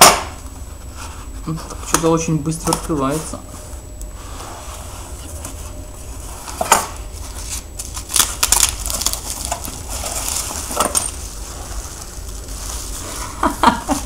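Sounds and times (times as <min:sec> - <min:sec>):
packaging rustling and crinkling: 0:04.6 - 0:14.0
bubble wrap crackles: 0:05.0 - 0:14.0.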